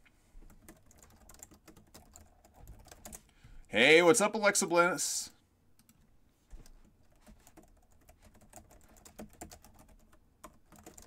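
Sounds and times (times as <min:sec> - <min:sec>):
faint keyboard typing: 0:00.4 - 0:03.5, 0:05.8 - 0:11.0.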